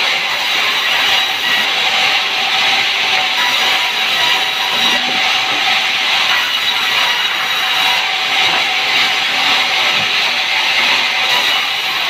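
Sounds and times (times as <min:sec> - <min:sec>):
band saw cutting wood: 0:00.0 - 0:12.0.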